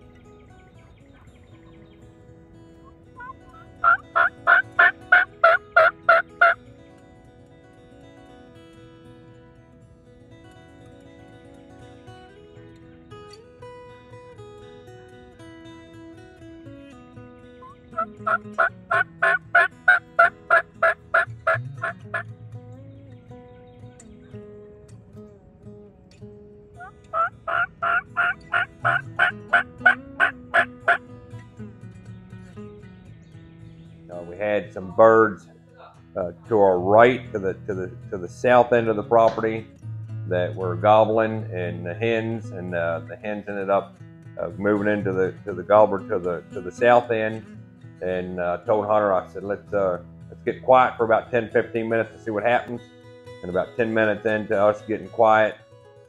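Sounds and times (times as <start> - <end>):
turkey yelping: 2.8 - 6.6, 17.6 - 22.2, 26.8 - 31.0.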